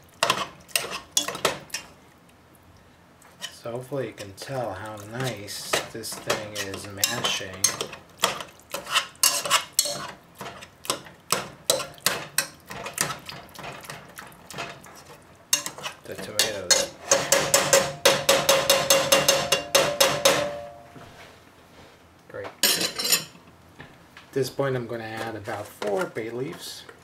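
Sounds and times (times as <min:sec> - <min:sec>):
metal masher knocking in saucepan: 0:05.2 - 0:08.4, 0:15.6 - 0:20.8.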